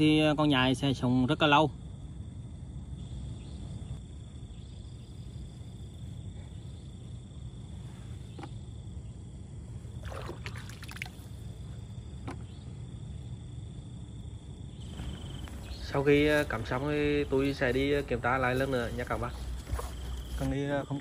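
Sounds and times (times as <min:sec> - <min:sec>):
high insect trill: 0:00.0 - 0:21.0
scrapes and splashes: 0:10.0 - 0:11.4.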